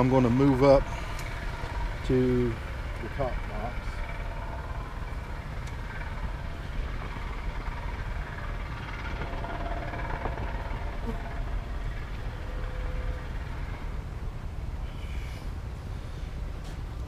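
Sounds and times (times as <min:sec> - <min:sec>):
honey bees buzzing: 0:00.0 - 0:16.5.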